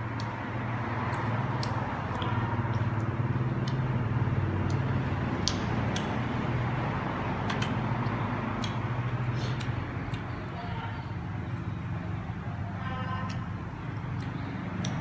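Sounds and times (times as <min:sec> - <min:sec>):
person chewing crunchy fruit: 0:00.0 - 0:10.5.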